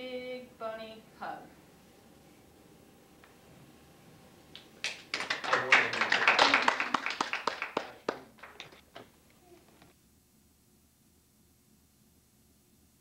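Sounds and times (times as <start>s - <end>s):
people clapping: 4.6s - 9.1s.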